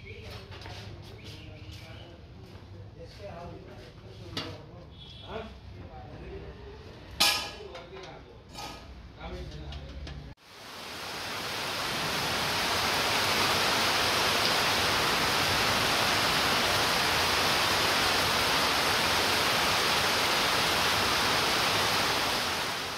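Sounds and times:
heavy rain pouring: 0:10.4 - 0:22.9.

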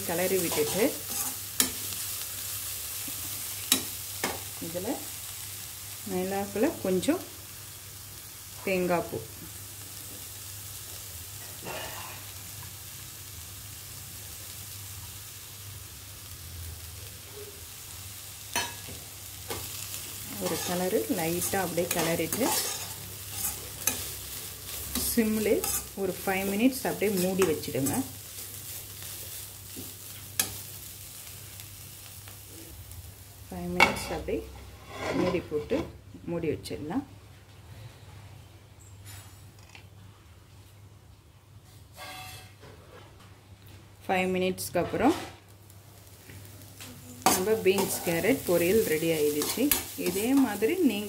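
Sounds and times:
vegetables sizzling in pan: 0:00.0 - 0:36.4, 0:44.6 - 0:51.0
spatula stirring: 0:20.3 - 0:26.0.

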